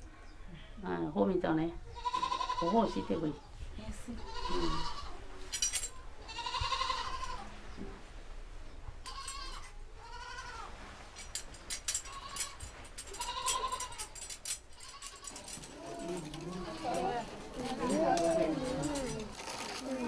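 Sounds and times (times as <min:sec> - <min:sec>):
goat bleating: 0:02.0 - 0:03.2, 0:04.2 - 0:05.2, 0:06.2 - 0:07.4, 0:09.1 - 0:10.7, 0:12.1 - 0:14.0, 0:14.8 - 0:20.0.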